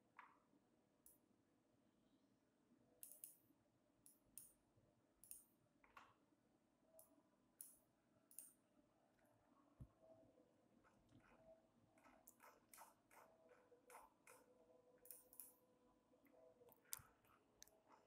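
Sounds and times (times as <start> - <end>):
computer mouse clicks: 3.0 - 3.4, 5.2 - 6.2, 7.0 - 8.6, 11.1 - 15.6, 16.2 - 18.0.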